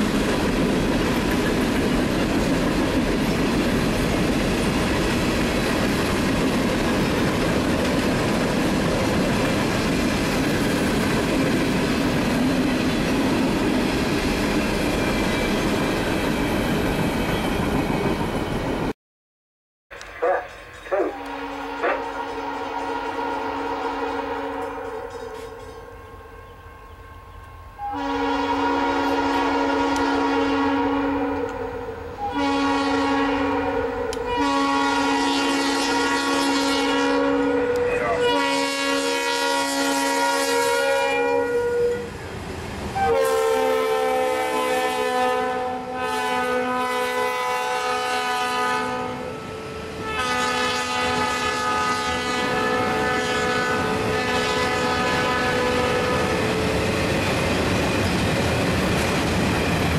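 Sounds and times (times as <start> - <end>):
locomotive air horn blasts: 21.0 - 25.2, 27.8 - 42.1, 43.0 - 56.7.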